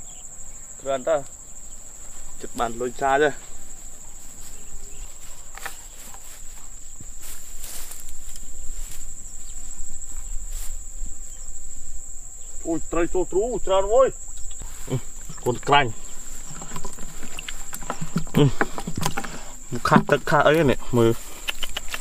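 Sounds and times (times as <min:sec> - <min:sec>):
insects chirring: 0:00.0 - 0:22.0
footsteps rustling through grass: 0:01.4 - 0:12.7, 0:14.2 - 0:18.1, 0:19.6 - 0:22.0
man speaking: 0:12.6 - 0:14.2, 0:19.7 - 0:21.2.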